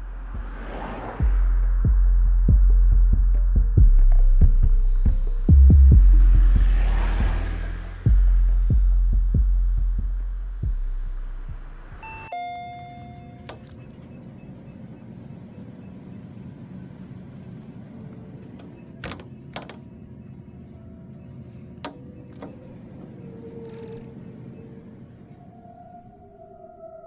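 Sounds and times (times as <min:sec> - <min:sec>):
deep throbbing rumble with thuds: 0:01.2 - 0:07.4, 0:08.0 - 0:11.8
steady low hum: 0:01.2 - 0:12.3
shop door entry chime: 0:12.0 - 0:14.8.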